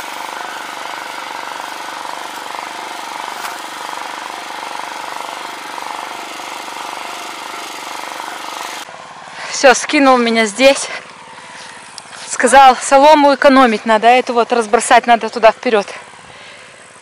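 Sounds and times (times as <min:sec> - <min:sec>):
diesel tractor engine running: 0:00.0 - 0:09.4.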